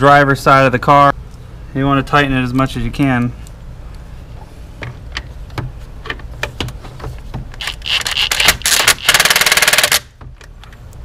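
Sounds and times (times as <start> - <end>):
cordless drill rapid rattle: 7.6 - 10.1.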